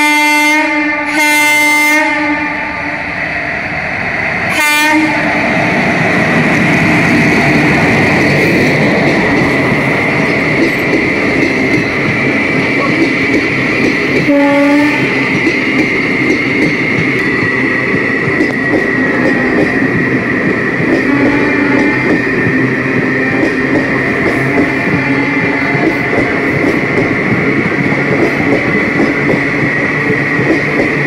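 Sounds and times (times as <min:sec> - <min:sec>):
train horn: 0:00.0 - 0:02.8, 0:04.5 - 0:05.2, 0:14.2 - 0:15.2, 0:21.0 - 0:22.3, 0:24.9 - 0:25.8
train wheels rumbling on rail: 0:00.0 - 0:31.0.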